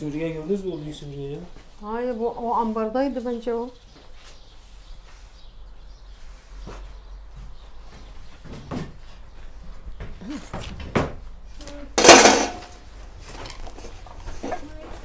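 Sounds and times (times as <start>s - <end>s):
household objects knocking and clinking: 12.0s - 12.8s.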